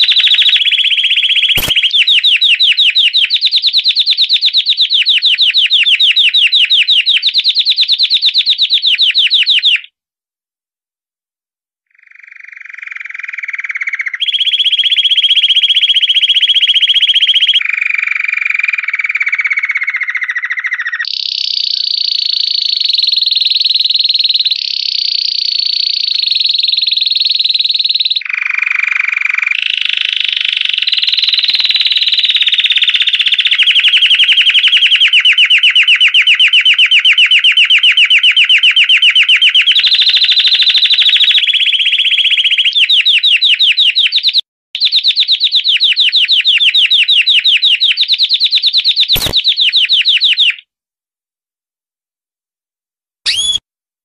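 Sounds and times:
canary singing rapid trills: 0.0s - 9.9s, 11.9s - 50.6s, 53.3s - 53.6s
sharp click: 1.6s - 2.0s, 49.2s - 49.4s, 53.3s - 53.6s.

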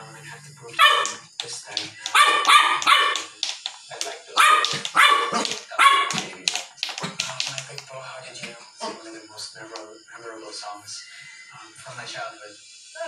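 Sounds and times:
small dog barking: 0.8s - 1.2s, 2.0s - 3.4s, 4.3s - 6.2s.

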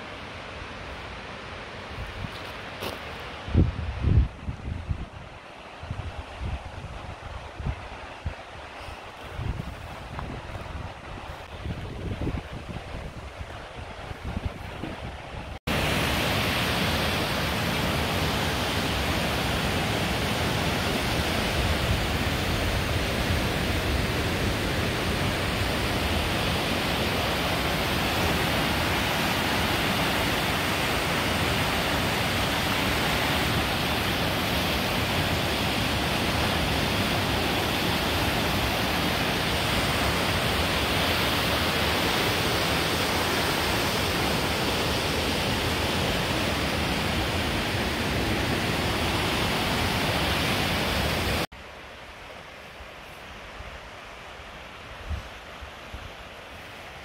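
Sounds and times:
river rushing through rapids: 5.1s - 57.0s.

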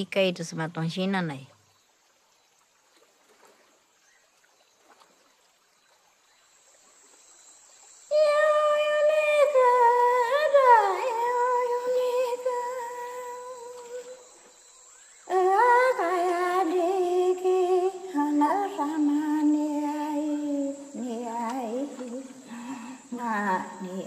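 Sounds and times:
person humming a wordless chant: 15.3s - 24.0s.

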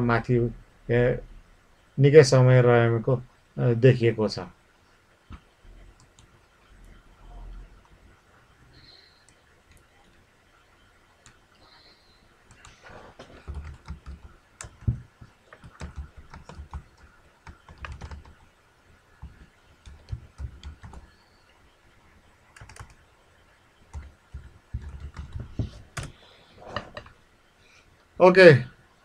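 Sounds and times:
typing on computer keyboard: 12.5s - 18.4s, 19.8s - 21.1s, 22.6s - 23.0s, 23.9s - 26.1s.

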